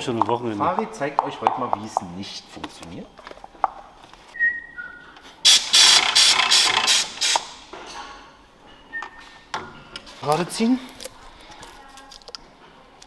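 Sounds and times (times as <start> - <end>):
faint whistle: 4.4 - 5.2
tool running in ratchet-like bursts: 5.5 - 7.4.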